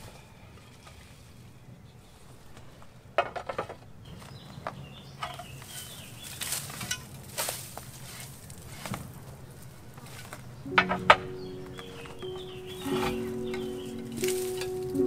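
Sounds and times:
roof tiles clinking and scraping: 0:03.2 - 0:03.9, 0:05.2 - 0:15.0.

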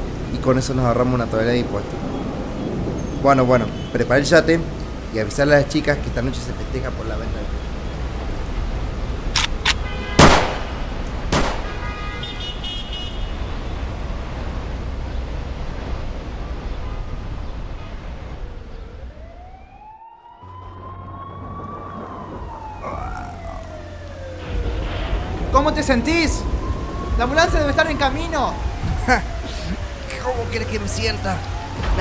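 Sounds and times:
sharp gunshots: 0:09.4 - 0:11.8
ambulance siren wailing: 0:18.4 - 0:32.0.

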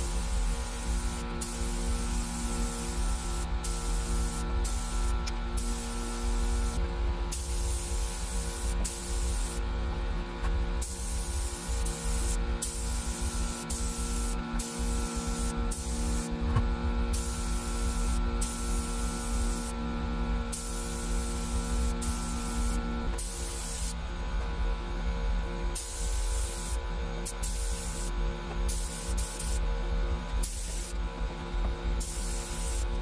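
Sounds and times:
spray gun hissing: 0:00.0 - 0:09.6, 0:10.8 - 0:16.3, 0:17.1 - 0:19.8, 0:20.5 - 0:24.0, 0:25.8 - 0:28.1, 0:28.7 - 0:29.6, 0:30.4 - 0:31.0, 0:32.0 - 0:32.9
steady hum: 0:00.0 - 0:33.0.

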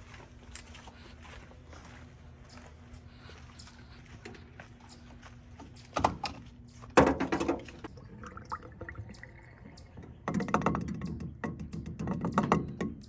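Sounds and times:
liquid pouring into fuel tank: 0:07.8 - 0:10.8.

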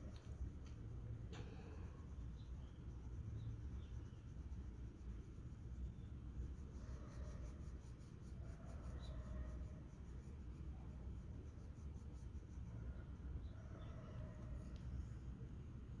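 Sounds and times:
pencil scratching on paper: 0:03.7 - 0:12.7.

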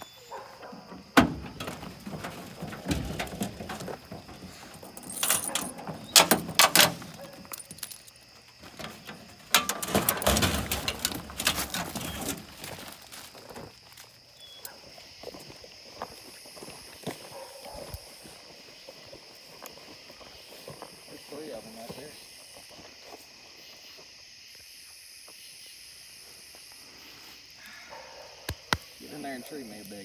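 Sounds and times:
tailgate dropping open clunk: 0:00.6 - 0:07.3, 0:08.8 - 0:12.5
chain lead jingling: 0:04.5 - 0:08.2.

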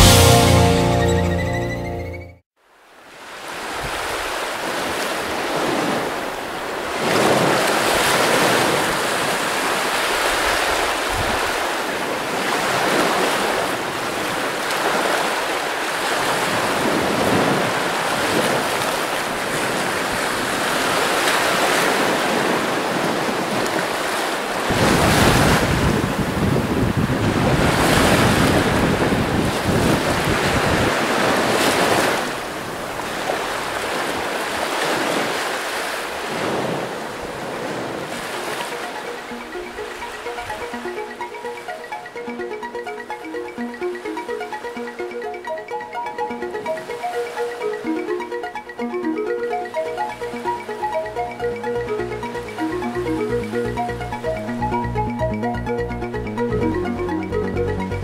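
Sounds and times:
choppy sea rushing: 0:02.9 - 0:58.0
wind buffeting microphone: 0:24.6 - 0:33.1.

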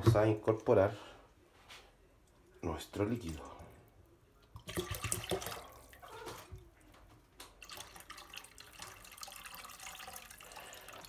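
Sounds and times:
liquid pouring into liquid: 0:04.3 - 0:06.8, 0:07.4 - 0:11.0.

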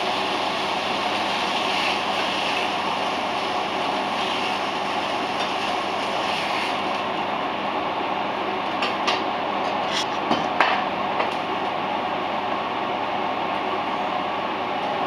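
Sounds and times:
cooking hiss: 0:00.0 - 0:07.7.

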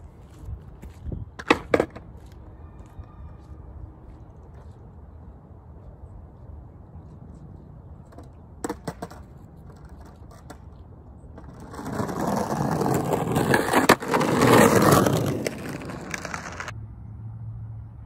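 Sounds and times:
skateboard wheels rolling on pavement: 0:00.0 - 0:16.8
skateboard clacks: 0:01.4 - 0:02.1, 0:08.1 - 0:16.7.

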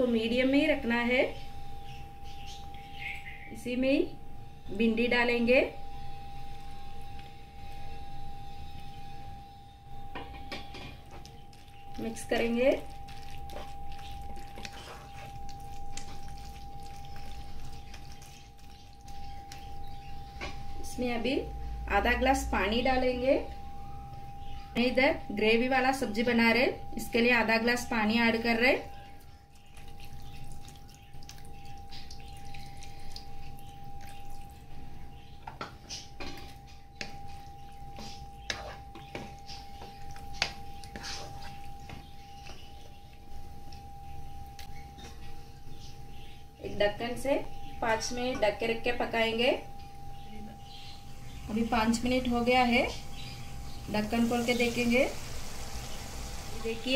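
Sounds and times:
faint steady hum: 0:00.0 - 0:56.9
spatula scraping in gravy: 0:38.5 - 0:39.1, 0:40.8 - 0:41.6.

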